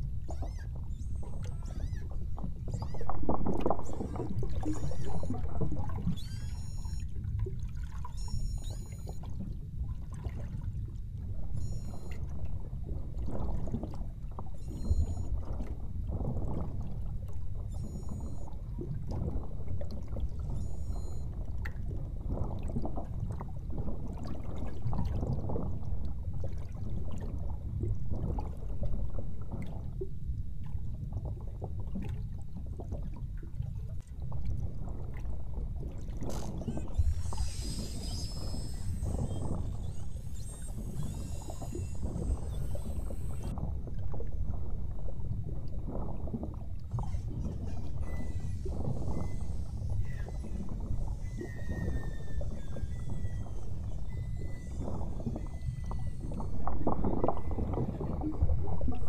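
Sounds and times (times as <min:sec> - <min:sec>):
water lapping against boat hull: 0:00.0 - 0:59.0
high-pitched pulsed chirps: 0:03.8 - 0:07.1, 0:08.1 - 0:09.2, 0:14.6 - 0:15.3, 0:17.7 - 0:18.5, 0:20.5 - 0:21.3, 0:36.6 - 0:43.5, 0:47.0 - 0:57.6.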